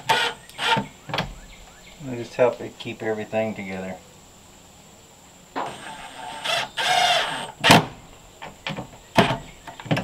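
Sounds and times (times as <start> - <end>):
cordless drill driving screws: 0.0 - 0.8, 5.6 - 7.8
sharp clicks and knocks: 7.7 - 10.0.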